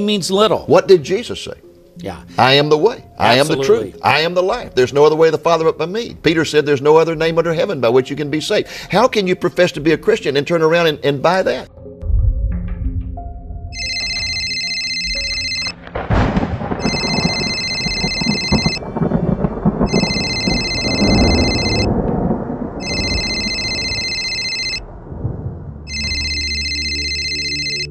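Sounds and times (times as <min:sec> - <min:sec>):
loud low rumble: 0:12.0 - 0:13.7, 0:24.8 - 0:26.2
phone ringtone ringing: 0:13.7 - 0:15.8, 0:16.8 - 0:18.9, 0:19.9 - 0:21.9, 0:22.8 - 0:24.8, 0:25.9 - 0:27.9.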